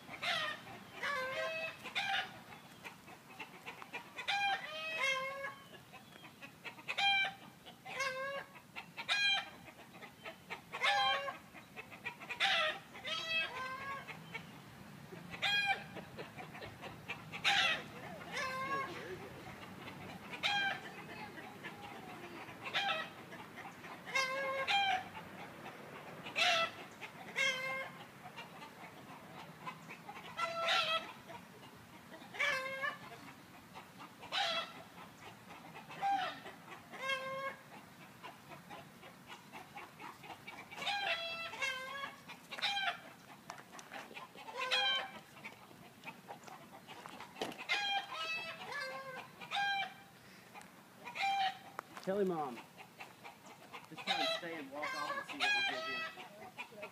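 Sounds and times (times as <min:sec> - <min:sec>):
chickens clucking: 0:00.0 - 0:56.9.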